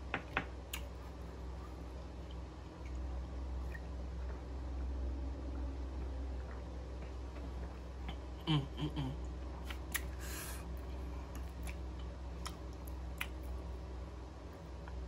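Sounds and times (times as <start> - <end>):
low room hum: 0.0 - 15.0
person grunting: 8.4 - 9.2
breathy exhale: 10.2 - 10.7.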